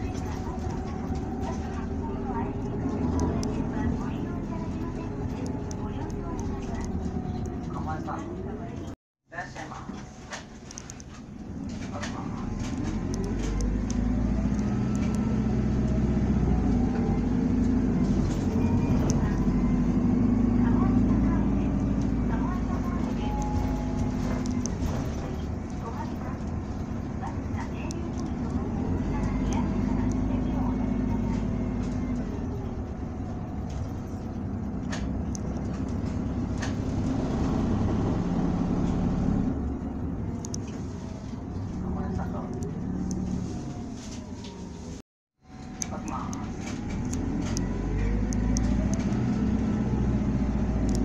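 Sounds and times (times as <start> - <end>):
bus diesel engine drone: 0.0 - 51.0.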